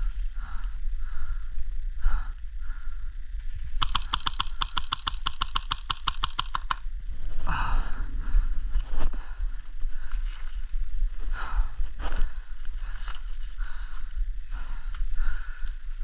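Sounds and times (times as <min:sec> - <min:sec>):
airsoft gun full-auto clicks: 0:03.8 - 0:06.9.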